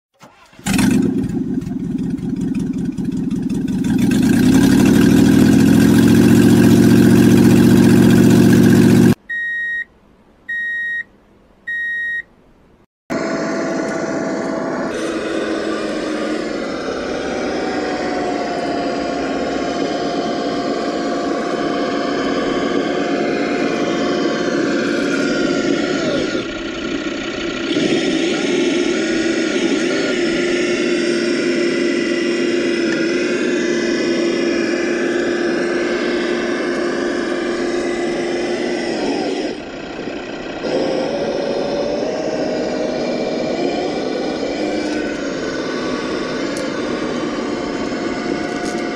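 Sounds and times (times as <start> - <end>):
electric motor and gears whining: 0.2 - 9.2, 13.1 - 48.9
large engine revving: 0.2 - 9.2, 13.1 - 48.9
short electronic beeps: 9.3 - 9.9, 10.5 - 11.1, 11.7 - 12.3.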